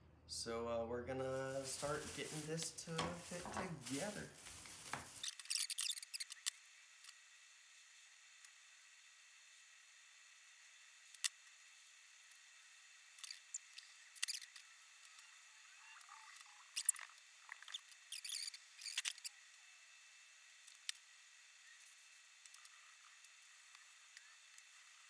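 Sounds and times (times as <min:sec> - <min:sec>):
parts set down on wooden table: 0:03.0 - 0:03.7.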